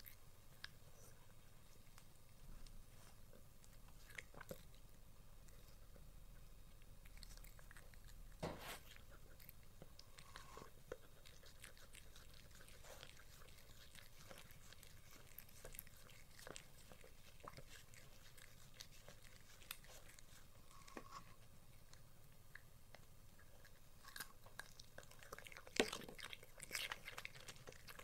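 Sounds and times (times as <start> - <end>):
dog crunching cucumber: 7.0 - 21.0, 23.4 - 28.0.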